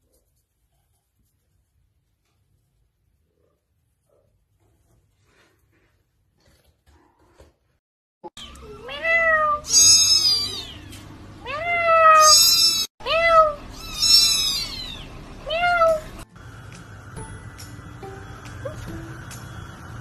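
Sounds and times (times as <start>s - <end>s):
kittens meowing: 8.4s - 16.0s.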